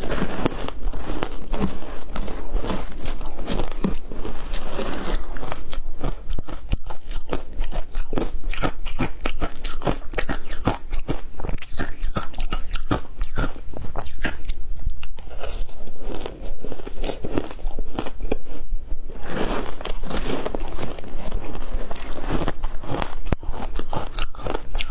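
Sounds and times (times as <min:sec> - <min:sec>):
ice crunching while chewed: 0:00.0 - 0:24.9
spoon scraping through ice: 0:19.1 - 0:24.9.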